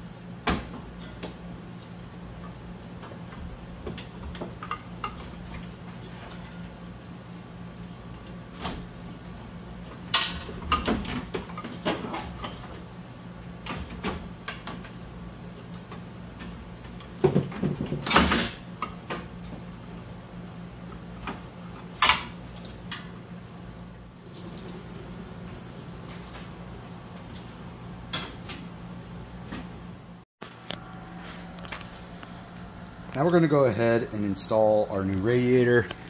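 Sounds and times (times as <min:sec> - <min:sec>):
steady low hum: 0:00.0 - 0:36.0
knocks and clatter of radiator: 0:17.1 - 0:18.4.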